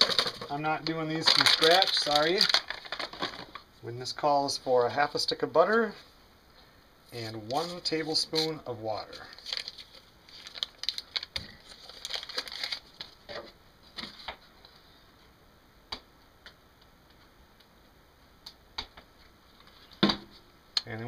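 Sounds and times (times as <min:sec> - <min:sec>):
paper wrapper crinkling: 0:00.0 - 0:03.6, 0:07.2 - 0:13.3.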